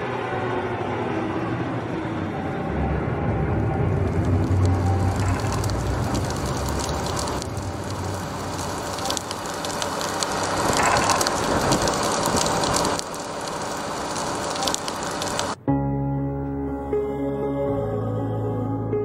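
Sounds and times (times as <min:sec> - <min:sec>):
fire crackling: 0:03.9 - 0:15.6.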